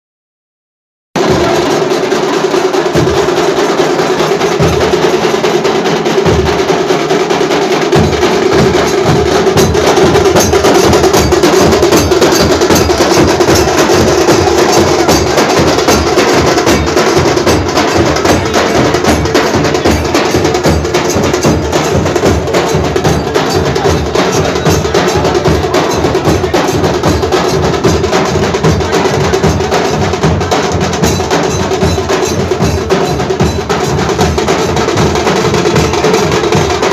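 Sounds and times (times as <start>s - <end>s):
drums beaten fast: 1.2s - 36.9s.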